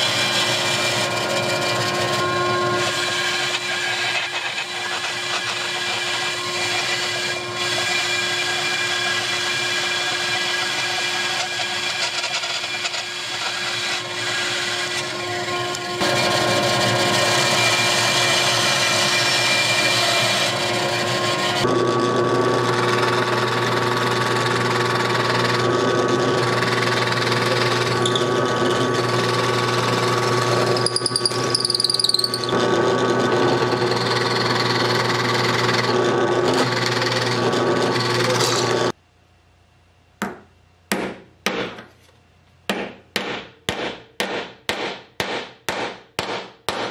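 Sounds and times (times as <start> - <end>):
bandsaw cutting wood: 0.0 - 39.0
drill press motor hum: 20.6 - 39.0.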